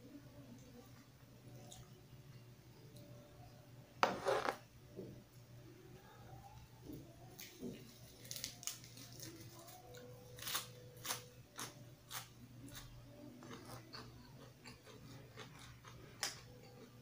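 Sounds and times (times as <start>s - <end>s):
lettuce being torn and chewed: 7.4s - 17.0s.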